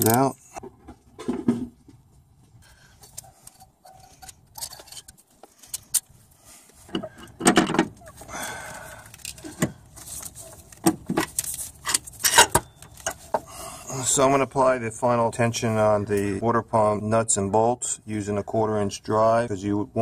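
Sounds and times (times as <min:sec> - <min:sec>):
metal scrape: 0:03.2 - 0:05.2
metal parts clinking: 0:03.4 - 0:05.2, 0:11.2 - 0:13.2.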